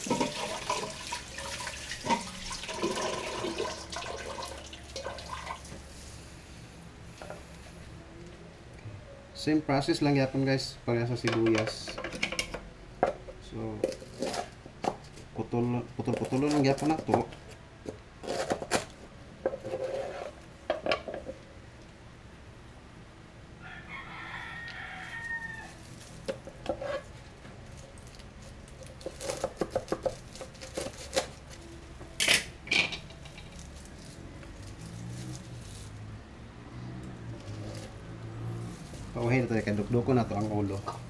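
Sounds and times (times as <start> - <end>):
rooster crowing: 23.6 - 26.0.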